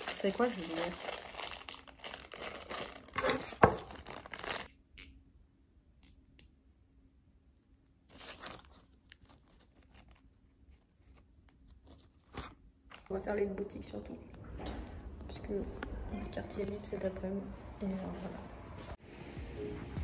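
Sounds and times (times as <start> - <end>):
plastic rustling: 0.0 - 4.7, 8.1 - 13.6
plastic wrapper tearing and crinkling: 0.0 - 5.1, 8.0 - 13.2.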